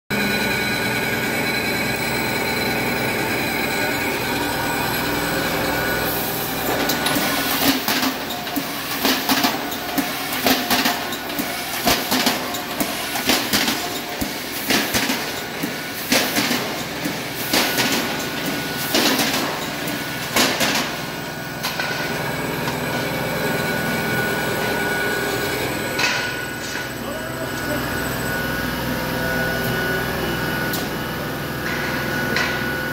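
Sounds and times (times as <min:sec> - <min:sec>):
welding machine humming: 0:00.2 - 0:32.9.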